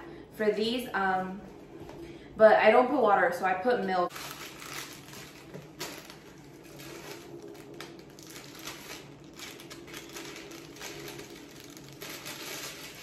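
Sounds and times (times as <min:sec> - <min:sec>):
faint steady hum: 0:00.0 - 0:13.0
plastic bag crinkling: 0:04.1 - 0:13.0.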